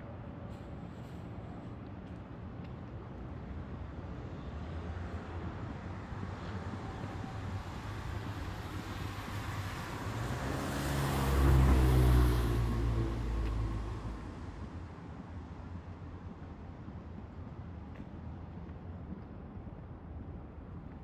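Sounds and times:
vehicle passing on wet road: 9.1s - 14.3s.

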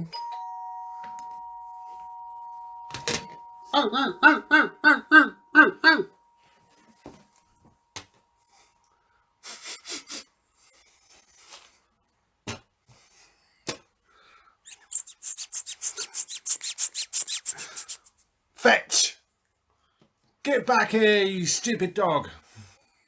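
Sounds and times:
rhythmic breathy patter: 12.8s - 18.3s.

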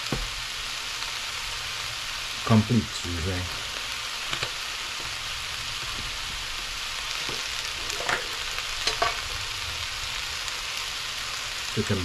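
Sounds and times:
vegetables sizzling in a frying pan: 0.0s - 12.0s.

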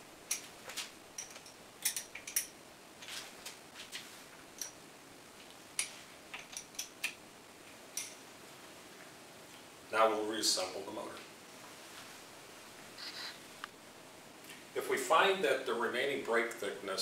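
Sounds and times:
wrench clicking on metal nuts: 1.2s - 2.5s.

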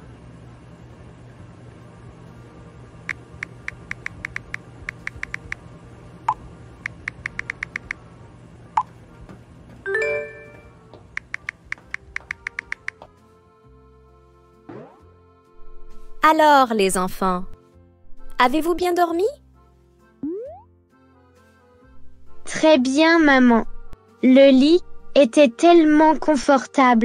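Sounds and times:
steady low hum: 0.0s - 9.9s
on-screen keyboard tapping clicks: 3.1s - 5.6s, 6.3s - 8.0s, 11.1s - 13.1s.

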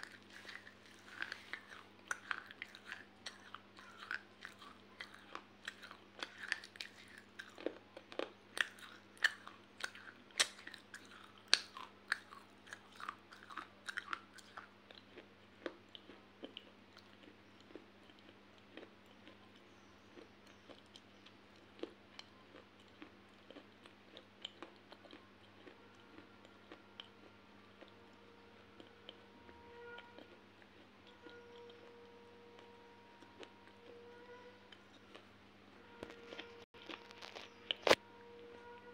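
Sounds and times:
crunchy chewing: 0.0s - 38.9s.

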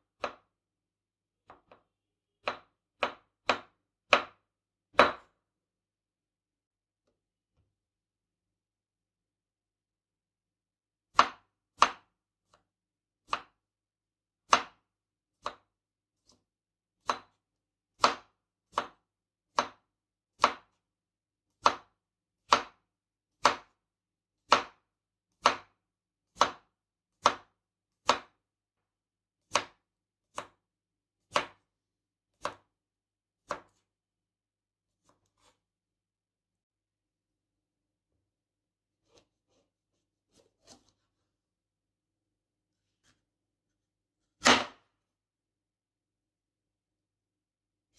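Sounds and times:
knife chopping on cutting board: 0.2s - 0.5s, 1.4s - 5.4s, 11.1s - 12.6s, 13.2s - 13.6s, 14.4s - 16.4s, 17.0s - 20.8s, 21.6s - 21.9s, 22.5s - 22.8s, 23.4s - 23.8s, 24.5s - 24.8s, 25.4s - 25.7s, 26.3s - 28.4s, 29.5s - 30.6s, 31.3s - 31.6s, 32.3s - 32.7s, 33.4s - 33.8s, 35.0s - 35.6s, 39.0s - 39.7s, 40.3s - 41.2s, 44.3s - 44.8s.

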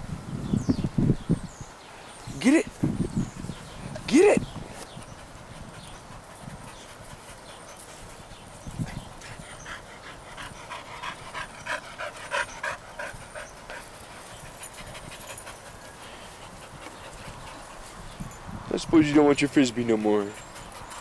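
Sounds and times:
dog panting: 4.8s - 18.2s, 19.0s - 21.0s.

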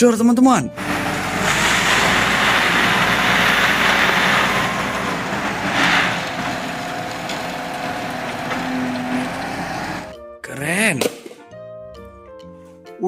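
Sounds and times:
rock pouring into steel hopper: 0.8s - 10.1s
diesel engine running: 0.8s - 10.2s.

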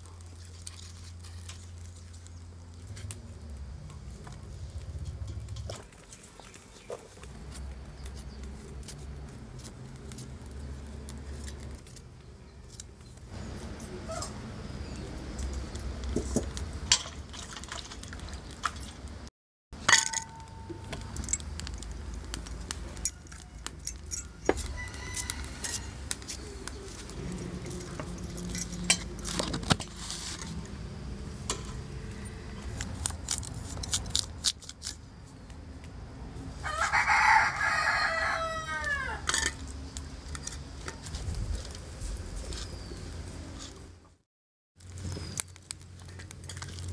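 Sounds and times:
steady low rumble: 1.4s - 5.9s
steel bowls clinking: 19.8s - 21.9s, 39.2s - 39.6s
rooster crowing: 23.0s - 26.3s, 36.6s - 39.4s.

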